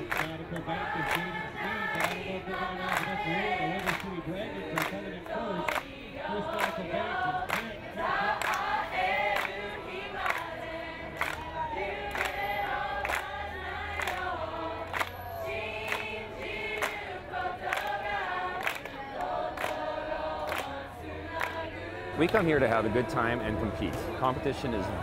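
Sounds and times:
crowd cheering and yelling: 0:22.2 - 0:25.0.

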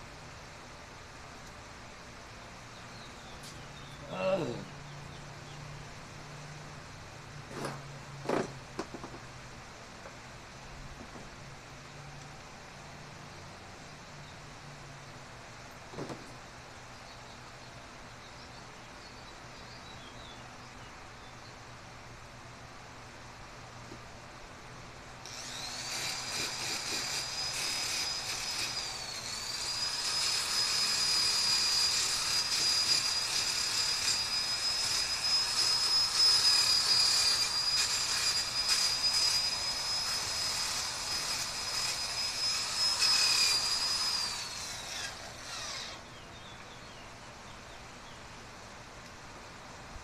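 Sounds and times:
angle grinder whine: 0:25.2 - 0:46.1
grinder grinding metal: 0:25.3 - 0:45.9.

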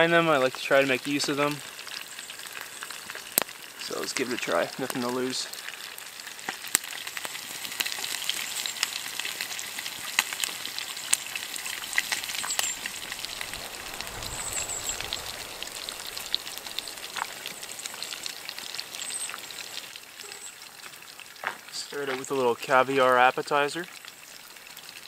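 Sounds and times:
fish sizzling in a frying pan: 0:00.0 - 0:25.0.

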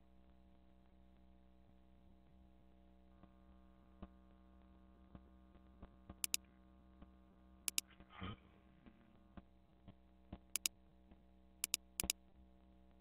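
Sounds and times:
faint mains hum: 0:00.0 - 0:13.0
computer mouse clicks: 0:11.6 - 0:12.2.

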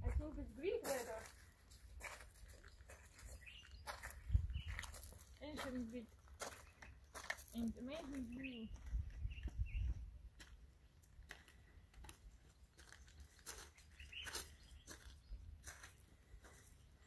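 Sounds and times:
footsteps on gravel: 0:00.0 - 0:17.0
bird chirps: 0:02.6 - 0:05.1, 0:08.2 - 0:10.0, 0:12.4 - 0:17.0.

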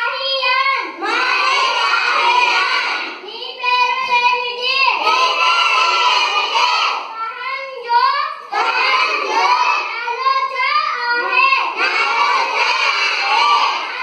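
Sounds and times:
children singing in unison: 0:00.8 - 0:03.2, 0:04.9 - 0:07.1, 0:08.5 - 0:14.0.

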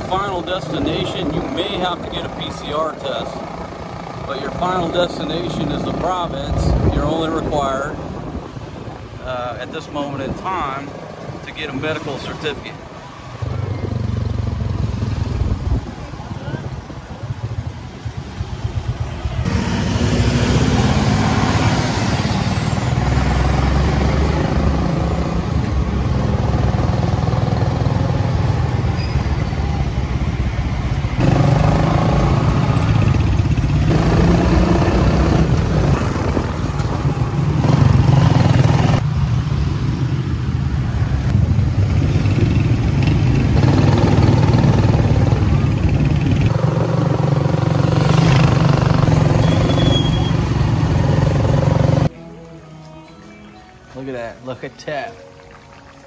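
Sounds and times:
motorcycle engine running: 0:41.3 - 0:52.1.

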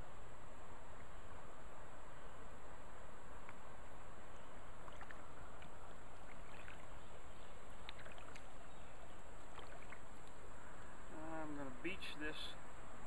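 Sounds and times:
steady hiss: 0:00.0 - 0:13.0
paddle splashes and drips: 0:04.7 - 0:10.9.

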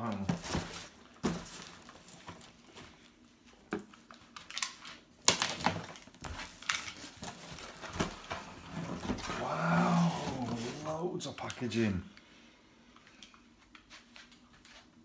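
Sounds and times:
cardboard scrapes and rustles: 0:06.4 - 0:11.0.

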